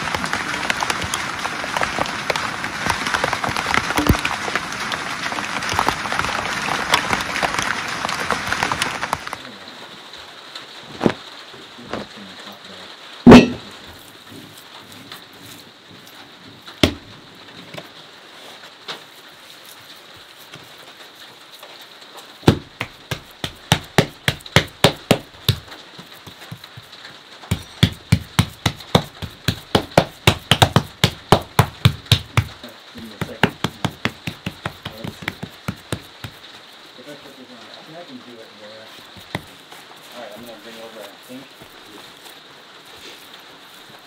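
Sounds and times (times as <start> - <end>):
heavy thud: 13.3 - 13.7
hands slapping wet clay: 22.5 - 26.9, 27.5 - 36.5, 39.1 - 39.8.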